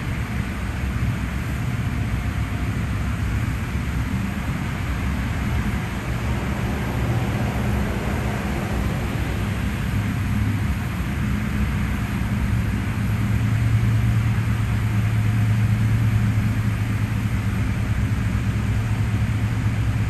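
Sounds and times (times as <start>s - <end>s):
wind noise rumble: 1.8s - 15.4s.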